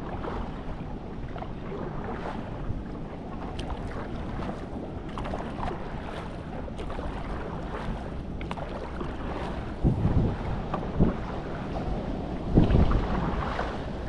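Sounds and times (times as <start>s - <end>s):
paddle dipping through water: 0.0s - 14.0s
wind on microphone: 0.0s - 14.0s
water splashes and drips: 3.2s - 10.0s
low thumping: 9.8s - 10.4s.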